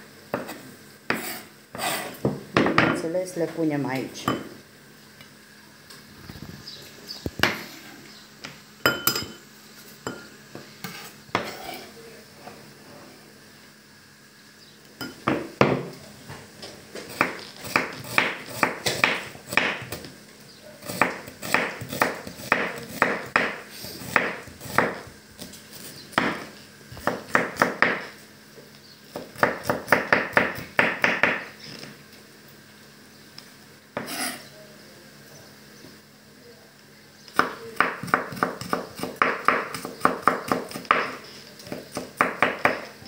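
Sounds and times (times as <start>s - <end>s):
knife chopping on wooden board: 17.0s - 20.0s, 20.8s - 25.5s, 26.1s - 28.1s, 29.1s - 31.5s, 37.4s - 42.8s.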